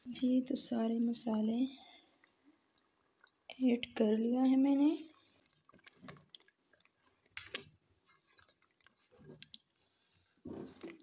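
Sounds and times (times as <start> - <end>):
wet squelching of stirring: 0.8 - 11.0.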